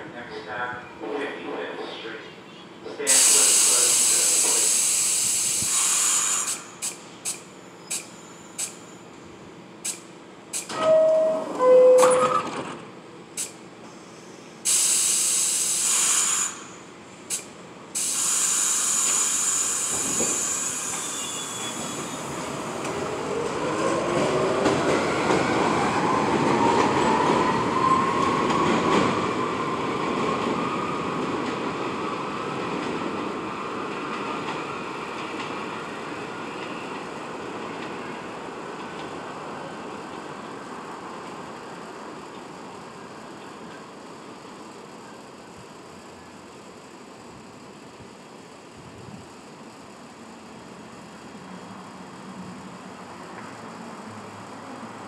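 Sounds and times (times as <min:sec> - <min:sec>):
train doors closing: 0:00.7 - 0:09.0, 0:09.8 - 0:44.0
air hissing: 0:03.1 - 0:08.8, 0:13.4 - 0:23.0.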